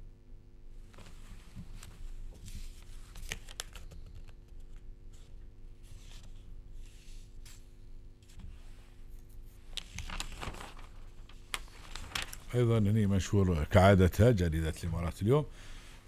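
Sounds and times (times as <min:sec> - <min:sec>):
faint steady hum: 0:00.0 - 0:16.0
newspaper pages rustling: 0:00.9 - 0:08.6, 0:09.5 - 0:12.7.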